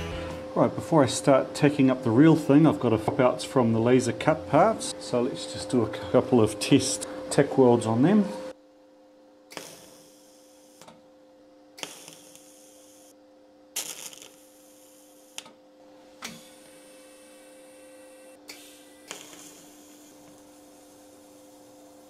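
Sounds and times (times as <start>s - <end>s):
steady low hum: 0.0s - 22.0s
welding arc bursts: 9.5s - 10.9s, 11.8s - 13.1s, 13.8s - 15.5s, 16.4s - 22.0s.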